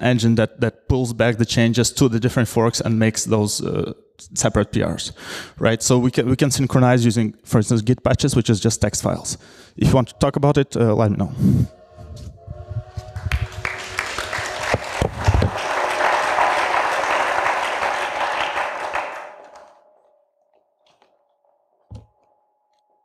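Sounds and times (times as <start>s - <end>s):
audience applauding: 13.0s - 20.1s.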